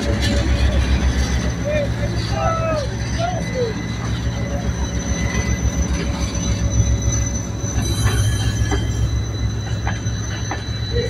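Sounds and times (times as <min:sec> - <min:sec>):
freight train rumbling: 0:00.0 - 0:11.0
high wheel squeal: 0:00.0 - 0:11.0.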